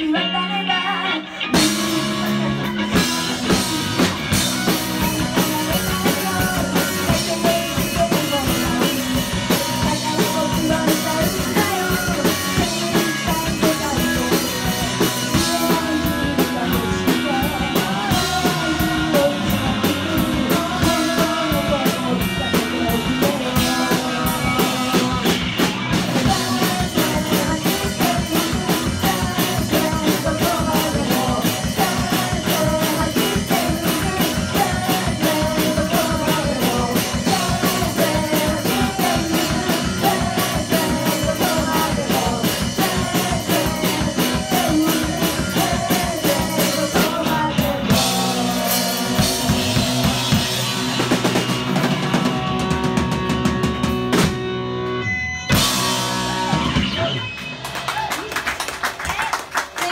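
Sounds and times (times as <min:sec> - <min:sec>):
live rock band playing: 0:00.0 - 0:59.9
woman singing into a microphone: 0:05.0 - 0:25.4, 0:26.1 - 0:50.2.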